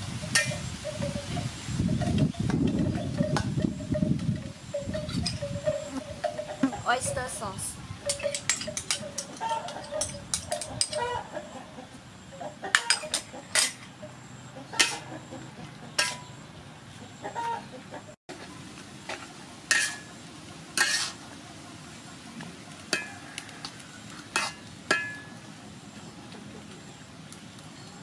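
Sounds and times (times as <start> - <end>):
metal spatula scraping wok: 0.3 - 0.7, 12.7 - 13.9, 14.7 - 15.2, 15.9 - 16.3, 19.1 - 21.3, 22.7 - 25.4
chicken clucking: 14.5 - 16.3, 16.9 - 18.2
food sizzling: 18.6 - 25.4.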